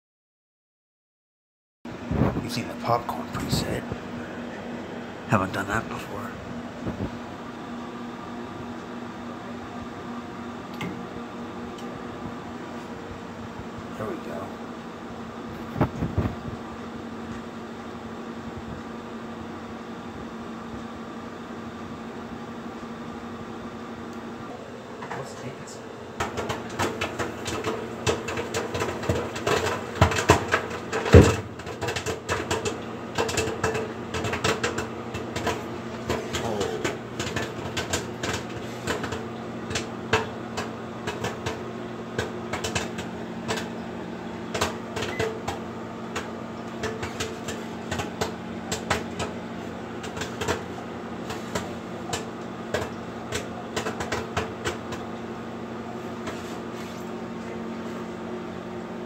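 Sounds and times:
microwave oven hum: 1.9s - 59.0s
popcorn popping: 26.1s - 58.7s.

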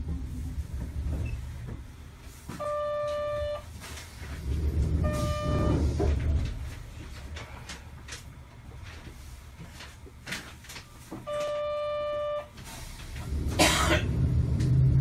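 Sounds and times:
tram motors rumbling: 0.0s - 15.0s
electronic buzzer: 5.0s - 5.7s.

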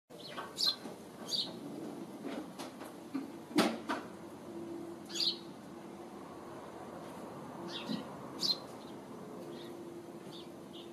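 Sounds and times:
small birds chirping: 0.1s - 1.6s, 5.1s - 5.5s, 7.6s - 10.9s.

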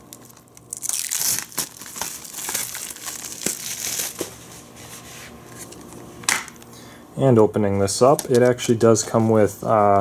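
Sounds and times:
plastic wrap crinkling and tearing: 0.0s - 4.4s.

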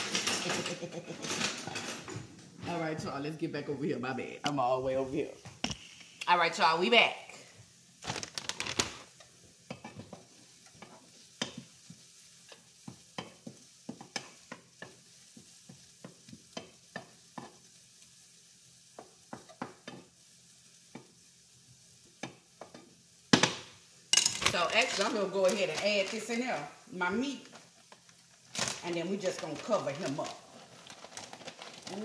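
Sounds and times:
food sizzling: 0.0s - 32.0s
wooden spoon scraping a frying pan: 9.2s - 17.8s.

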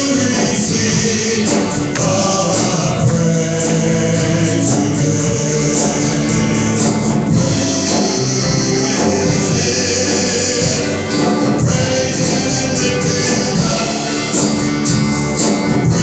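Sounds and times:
band playing gospel music: 0.0s - 16.0s
tambourine shaking: 0.0s - 16.0s
voices singing: 0.0s - 16.0s.

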